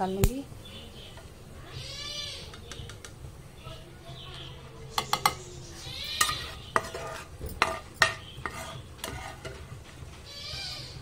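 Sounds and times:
faint frying sizzle: 0:00.0 - 0:11.0
spoon scraping a pan: 0:04.9 - 0:10.9.

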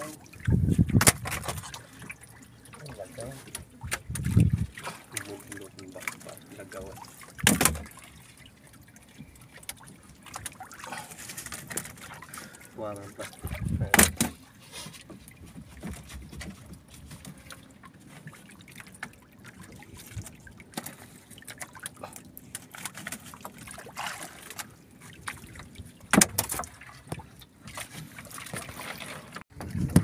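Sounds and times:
water sloshing around a boat: 0:00.0 - 0:30.0.

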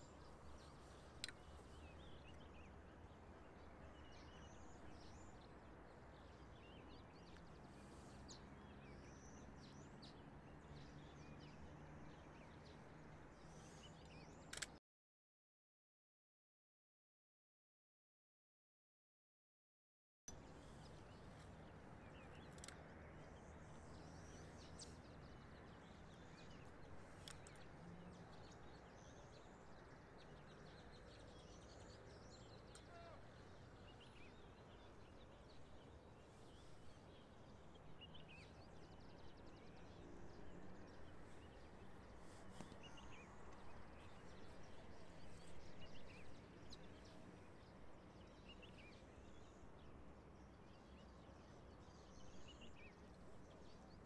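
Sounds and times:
soft clicks: 0:01.1 - 0:01.7, 0:14.0 - 0:14.8, 0:22.3 - 0:23.0, 0:27.1 - 0:27.7
faint bird chirps: 0:31.1 - 0:35.2.

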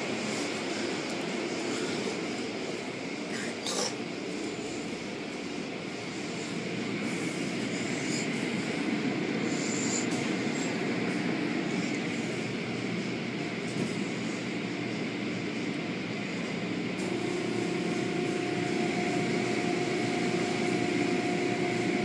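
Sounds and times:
car wash machinery rumbling: 0:00.0 - 0:22.0.

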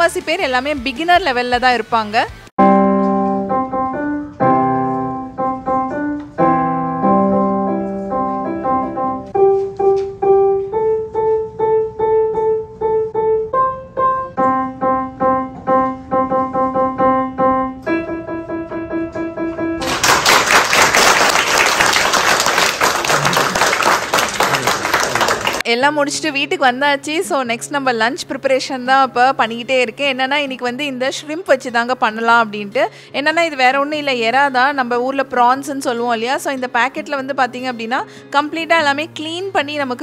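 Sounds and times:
digital piano playing: 0:02.6 - 0:20.0
audience applauding: 0:19.8 - 0:25.6.

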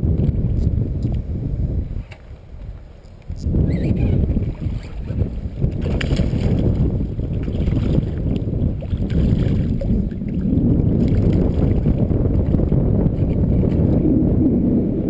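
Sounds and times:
wind buffeting microphone: 0:00.0 - 0:15.0
faint fish splashes: 0:04.0 - 0:12.0.

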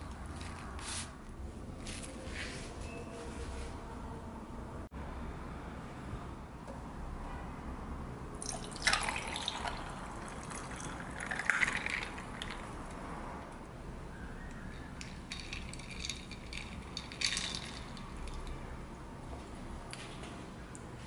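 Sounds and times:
ice clinking and cracking: 0:08.4 - 0:12.7, 0:15.0 - 0:18.6
tea pouring into glass: 0:08.4 - 0:12.8.

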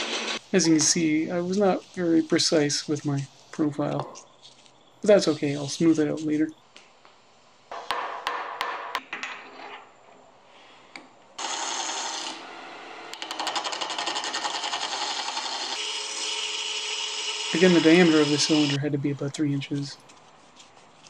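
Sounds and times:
wood lathe cutting hiss: 0:11.4 - 0:13.2, 0:15.6 - 0:18.8.

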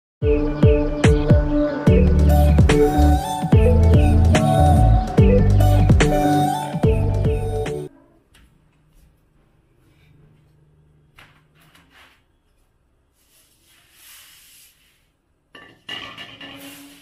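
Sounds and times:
metal pans clinking and scraping: 0:15.5 - 0:17.0.

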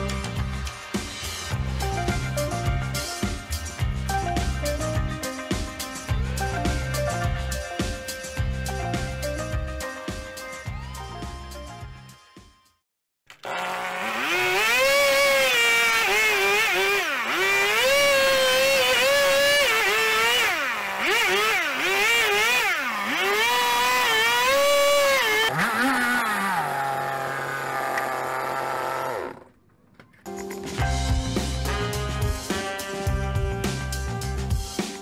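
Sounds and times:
chainsaw cutting log: 0:13.3 - 0:29.5
chainsaw idling: 0:13.4 - 0:29.6.

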